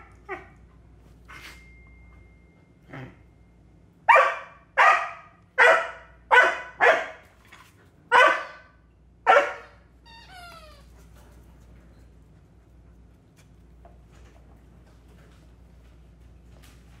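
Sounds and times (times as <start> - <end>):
dog barking: 4.1 - 7.2, 8.1 - 9.8
dog whining: 10.0 - 11.0.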